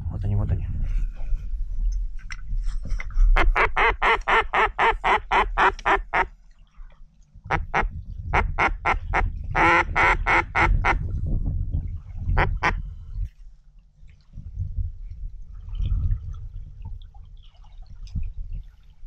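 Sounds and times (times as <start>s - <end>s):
duck call quacks: 3.4s - 6.3s, 7.5s - 11.0s, 12.4s - 12.8s.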